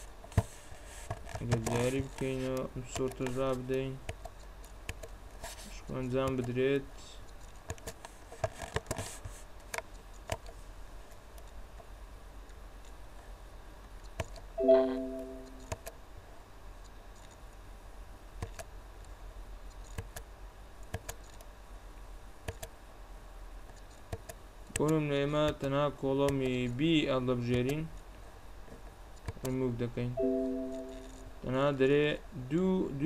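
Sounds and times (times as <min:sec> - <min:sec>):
computer alert chime: 0:14.6 - 0:15.7, 0:30.2 - 0:31.3
computer mouse clicking: 0:15.5 - 0:16.0, 0:18.4 - 0:18.7, 0:20.8 - 0:21.5, 0:22.4 - 0:22.7, 0:23.7 - 0:25.6.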